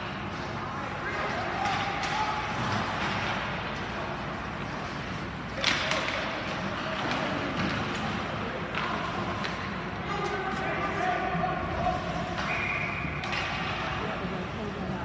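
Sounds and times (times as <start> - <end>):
hockey stick or puck crack: 0.0 - 10.8, 12.0 - 14.0
skating: 0.0 - 15.0.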